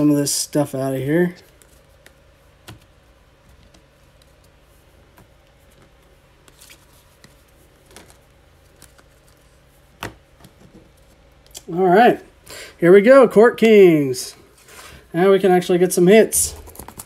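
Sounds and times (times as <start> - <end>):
low room hum: 0.0 - 17.0
trading cards rustling and clicking: 0.6 - 11.7, 16.2 - 17.0.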